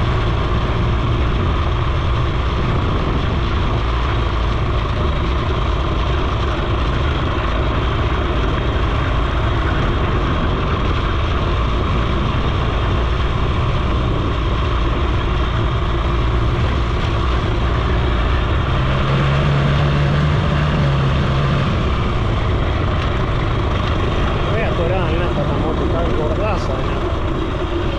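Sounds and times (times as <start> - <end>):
moped engine running: 0.0 - 27.9.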